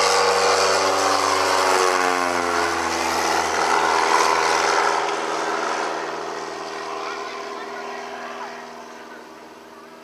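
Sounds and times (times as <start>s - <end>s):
model airplane engine fly-by: 0.0s - 10.0s.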